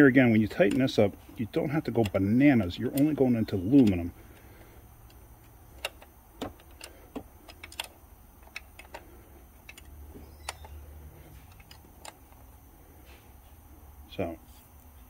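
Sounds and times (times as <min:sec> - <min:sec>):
faint low hum: 0:00.0 - 0:15.0
sharp metal clicks of hand tool: 0:00.5 - 0:01.0.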